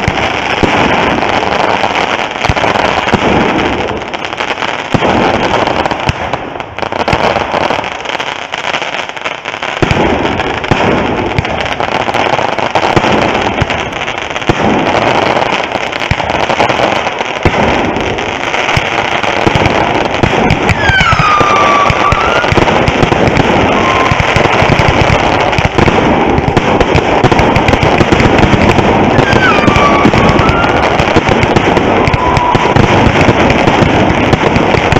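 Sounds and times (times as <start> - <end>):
fireworks crackling and popping: 0.0 - 34.9
firework whistle falling in pitch: 20.7 - 22.8, 23.6 - 24.6, 29.1 - 31.2, 31.8 - 32.9.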